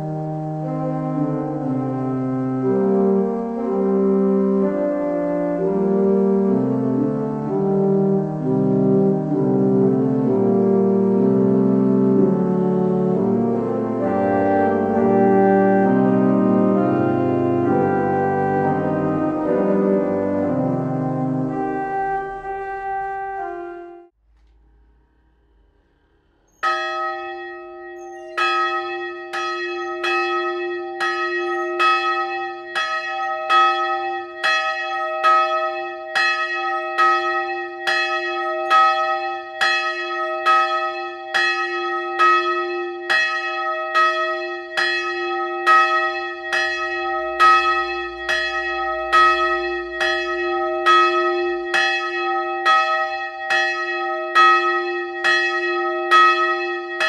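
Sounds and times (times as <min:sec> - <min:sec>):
church bell tolling: 0:00.0 - 0:57.0
low bell hum: 0:21.1 - 0:57.0.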